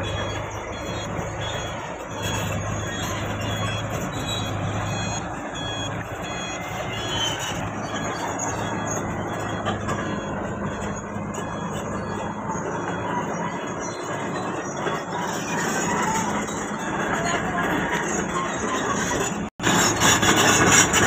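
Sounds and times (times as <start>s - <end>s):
crane diesel engine running: 0.0s - 21.0s
high-pitched metallic squeaks: 0.0s - 21.0s.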